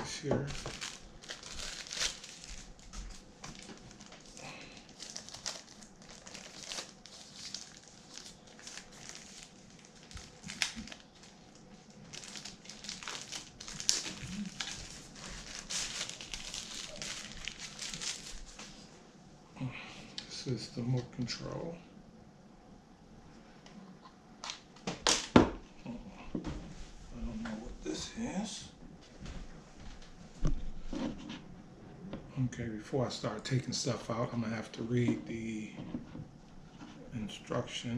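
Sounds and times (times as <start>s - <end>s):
packaging crinkling and rustling: 0.0s - 18.9s.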